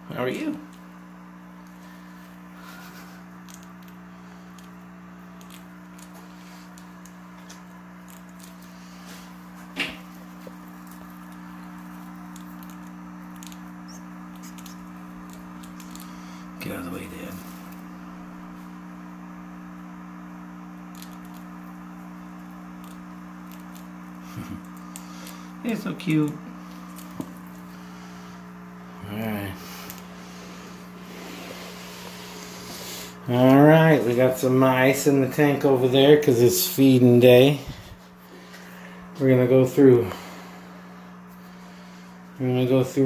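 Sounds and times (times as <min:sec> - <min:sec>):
steady low hum: 0:00.0 - 0:43.0
mice rustling in bedding: 0:00.1 - 0:19.8, 0:20.5 - 0:39.5.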